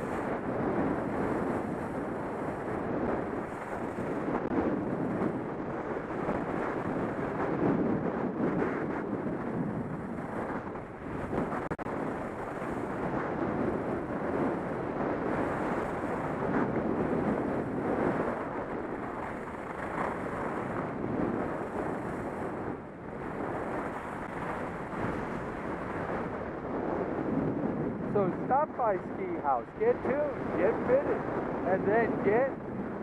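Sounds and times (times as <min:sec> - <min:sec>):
wind rushing over microphone: 0:00.0 - 0:33.0
skis sliding on snow: 0:19.2 - 0:22.5.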